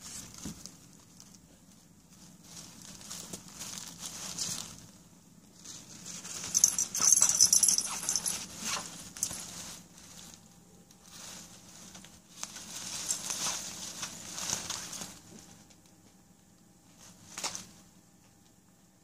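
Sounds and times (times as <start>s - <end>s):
plastic bag crinkling: 0.0s - 15.9s.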